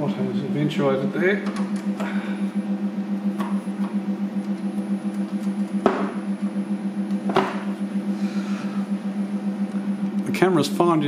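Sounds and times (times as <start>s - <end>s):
milling motor humming: 0.0s - 11.0s.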